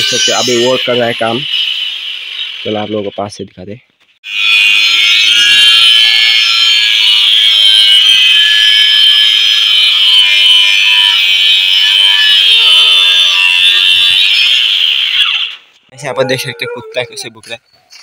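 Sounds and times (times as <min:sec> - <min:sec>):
circular saw cutting wood: 0:00.0 - 0:02.6, 0:04.3 - 0:15.6.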